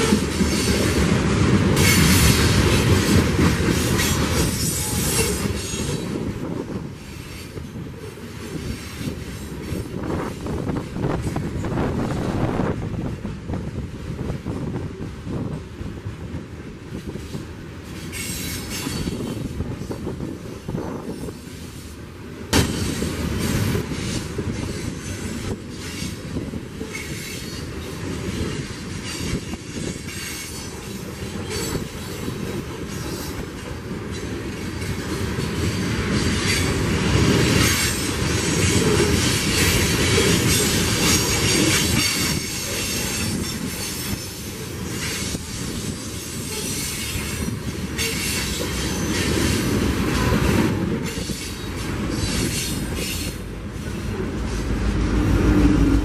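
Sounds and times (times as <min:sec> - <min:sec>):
train wheels clattering over rails: 0:00.0 - 0:56.0
high wheel squeal: 0:51.0 - 0:53.4.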